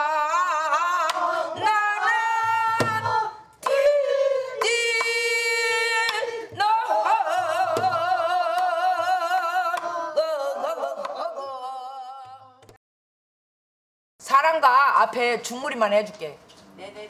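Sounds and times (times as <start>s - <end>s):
woman singing with vibrato: 0.0s - 12.6s.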